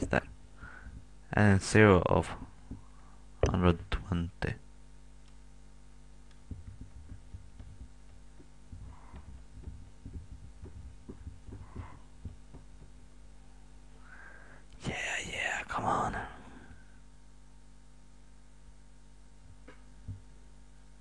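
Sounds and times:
low electrical hum: 0.0s - 21.0s
soft low thumps: 6.3s - 13.4s, 19.4s - 20.4s.

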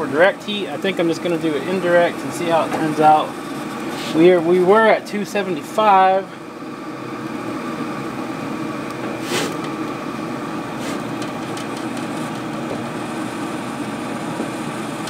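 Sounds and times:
pellet grill fan whirring: 0.0s - 15.0s.

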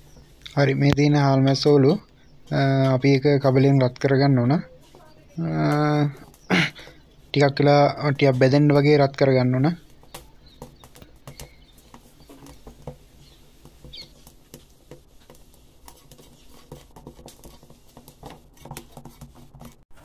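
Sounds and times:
wood fire crackling: 0.0s - 20.0s
stick scraping and tapping pan: 5.6s - 19.8s.

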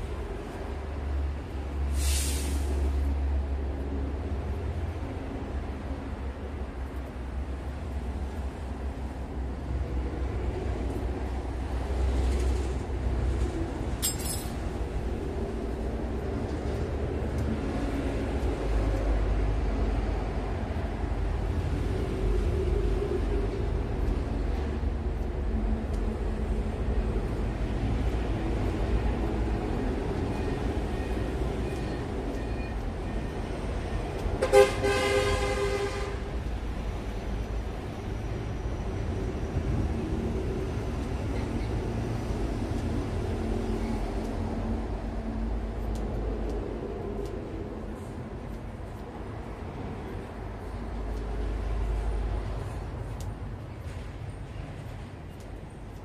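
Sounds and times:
metal comb clinking on tile: 14.0s - 14.5s
loud horn-like toot: 34.4s - 36.2s.

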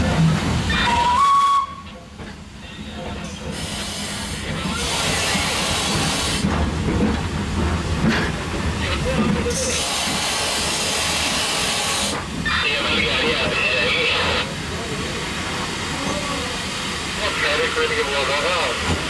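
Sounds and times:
steam hissing: 3.4s - 6.5s, 9.6s - 12.3s.

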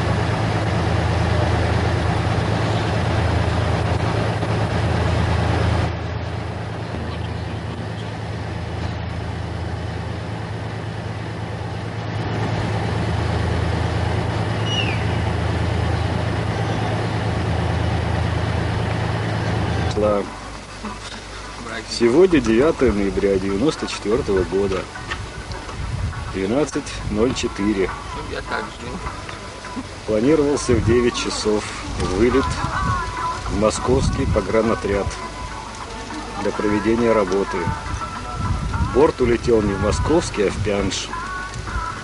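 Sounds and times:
tank diesel engine drone: 0.0s - 32.6s.

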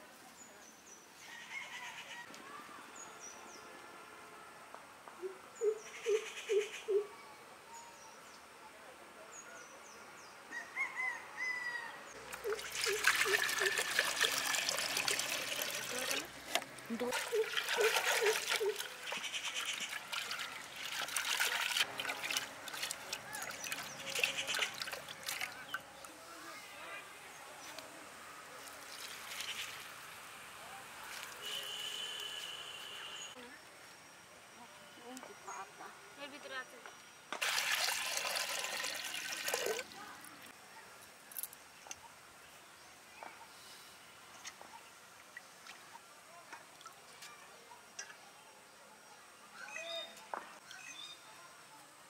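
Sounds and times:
water sloshing in a pot: 12.3s - 25.8s, 37.4s - 39.9s.

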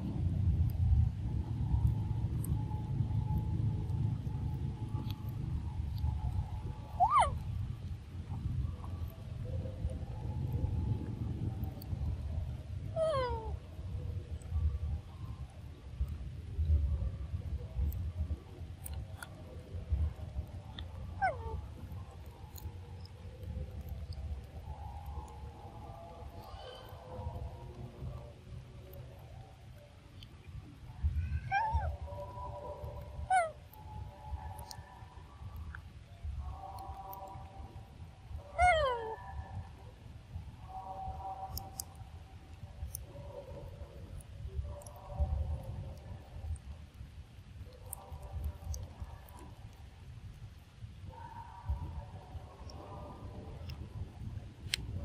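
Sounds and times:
faint steady tones: 0.0s - 55.0s
low steady rumble: 0.0s - 55.0s
faint clicks: 40.6s - 55.0s.

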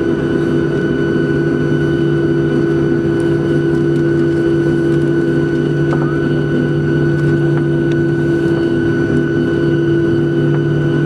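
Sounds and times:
jet engines humming: 0.0s - 11.0s.

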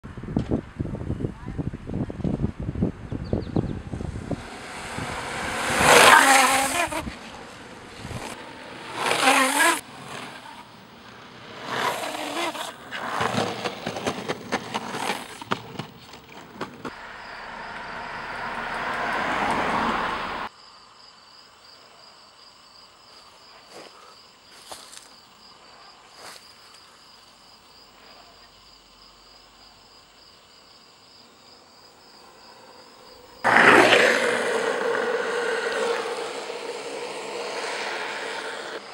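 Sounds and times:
longboard wheels rolling: 2.2s - 20.5s, 32.4s - 38.9s
longboard wheels sliding on asphalt: 2.2s - 20.5s, 32.2s - 38.9s.

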